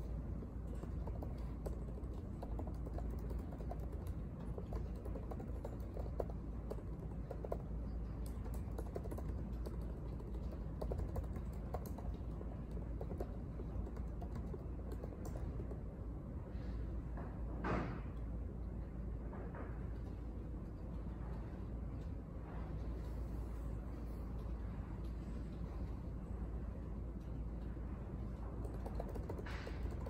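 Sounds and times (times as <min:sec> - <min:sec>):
laptop keyboard typing: 0:00.0 - 0:15.9, 0:28.2 - 0:30.0
low background hum: 0:00.0 - 0:30.0.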